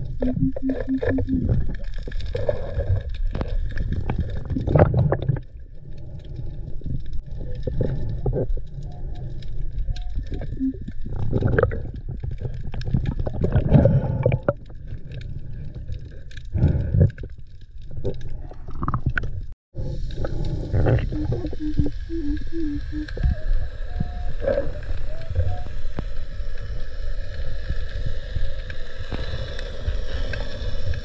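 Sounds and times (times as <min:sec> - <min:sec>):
muffled underwater rumble: 0:00.0 - 0:31.0
short low tones: 0:00.2 - 0:01.7, 0:20.9 - 0:25.8.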